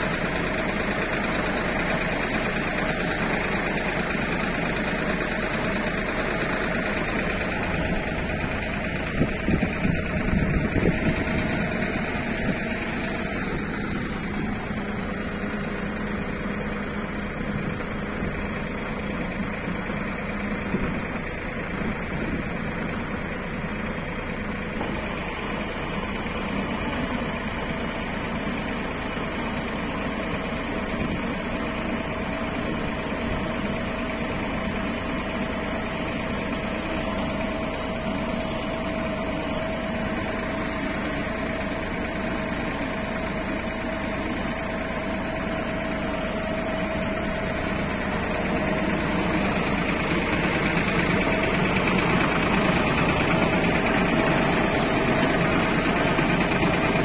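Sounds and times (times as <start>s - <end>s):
baling machine running: 0.0s - 57.0s
steady whine: 31.8s - 57.0s.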